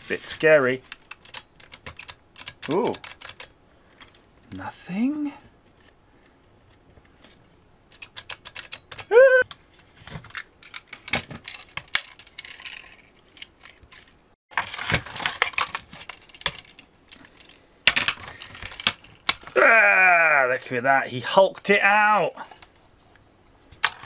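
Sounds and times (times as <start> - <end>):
plastic crackling and scraping: 8.6 - 19.5.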